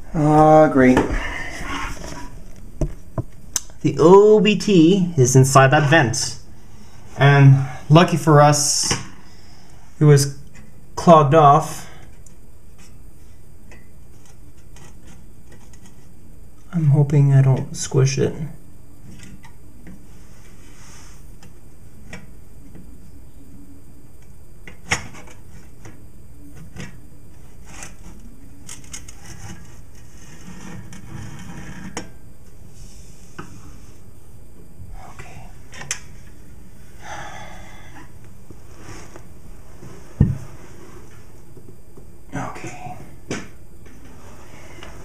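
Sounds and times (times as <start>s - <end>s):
vent grille clicking and scraping: 13.6s - 16.2s, 26.6s - 36.5s.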